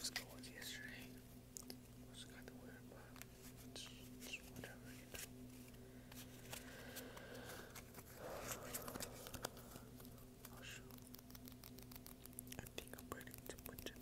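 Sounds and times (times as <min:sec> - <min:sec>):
playing cards riffling: 0:04.5 - 0:14.0
playing cards clicking and tapping: 0:08.6 - 0:10.6.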